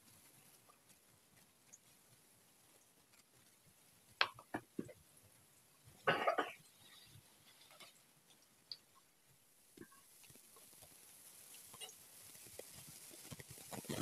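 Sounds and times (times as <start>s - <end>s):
food frying in hot oil: 0.0s - 14.0s
person coughing: 6.1s - 6.6s.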